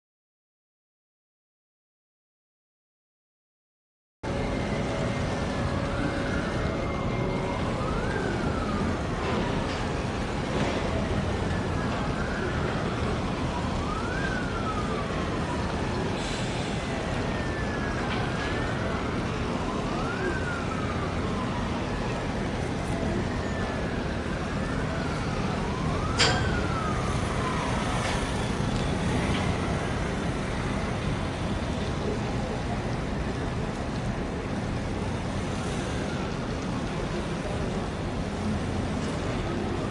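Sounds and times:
siren wailing: 4.3 - 32.2, 35.4 - 37.4.

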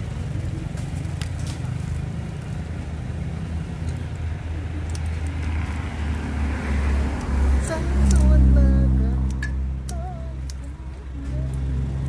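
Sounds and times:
low steady rumble: 7.1 - 12.0.

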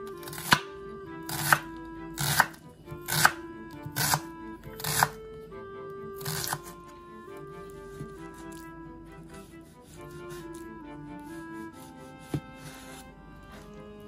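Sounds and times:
soft background music: 0.0 - 14.0
knife chopping on wooden board: 0.3 - 0.7, 1.3 - 5.2, 6.2 - 6.7.

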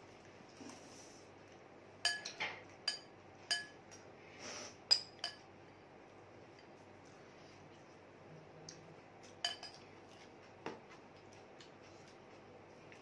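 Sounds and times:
spoon clinking on glass bowl: 2.0 - 3.8, 4.9 - 5.5, 9.4 - 9.8.

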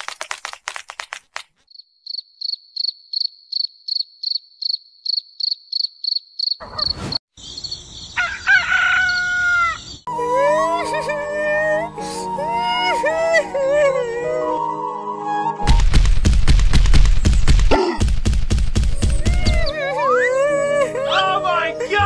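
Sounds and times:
sharp crackles: 0.0 - 1.7, 15.7 - 19.3
cricket chirping: 1.7 - 10.1
bird calling with falling notes: 19.0 - 22.0.

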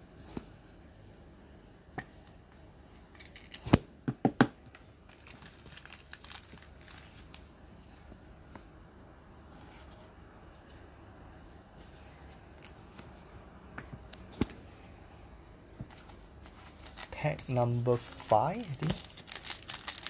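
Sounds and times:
foil pack crinkling: 5.1 - 7.4, 15.9 - 20.0.

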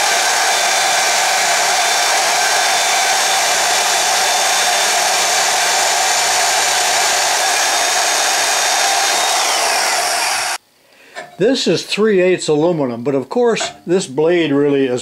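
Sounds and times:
band saw cutting metal: 0.0 - 10.6.

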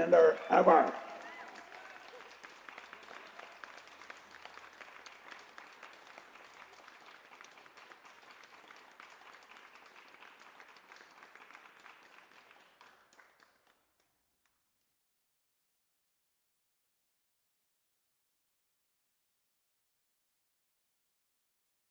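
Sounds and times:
audience applauding: 0.0 - 13.8.

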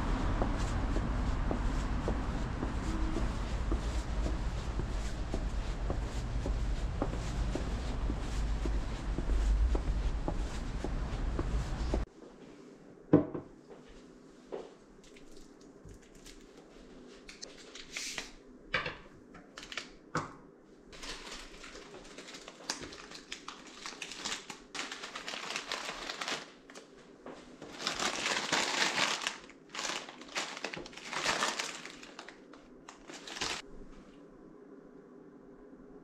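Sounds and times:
plastic bags rustling: 19.5 - 19.9, 20.9 - 33.7.

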